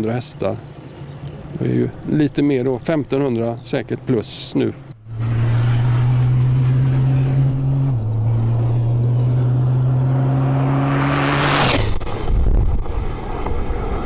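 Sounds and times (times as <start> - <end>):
diesel truck engine at high revs: 5.0 - 13.0.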